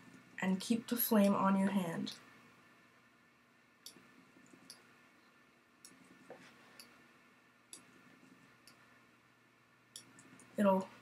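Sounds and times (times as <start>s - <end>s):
computer mouse clicks: 3.8s - 4.9s, 5.8s - 7.0s, 7.7s - 8.9s, 9.9s - 10.6s.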